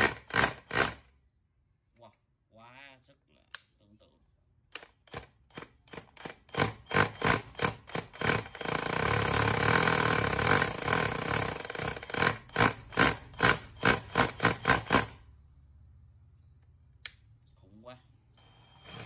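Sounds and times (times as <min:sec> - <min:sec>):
rotary hammer hammering: 0:00.0 - 0:01.0, 0:05.1 - 0:15.2.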